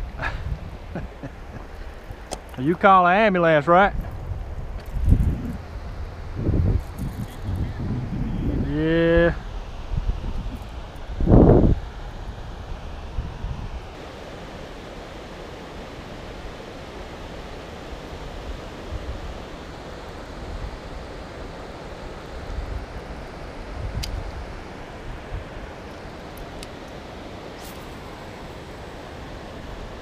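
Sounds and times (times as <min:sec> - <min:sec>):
wind buffeting microphone: 0:00.0 - 0:02.9, 0:03.8 - 0:14.0.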